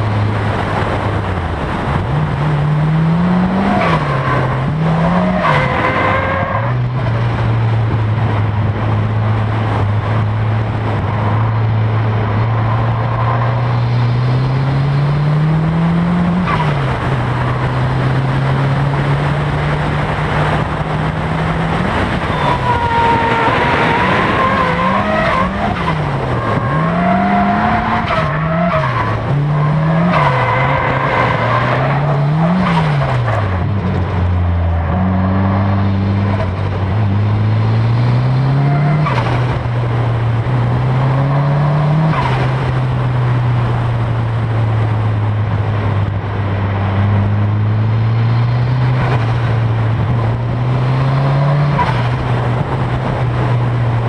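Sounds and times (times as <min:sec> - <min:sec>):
car engine revving hard: 0:00.0 - 0:54.0
tyres squealing: 0:22.2 - 0:32.8.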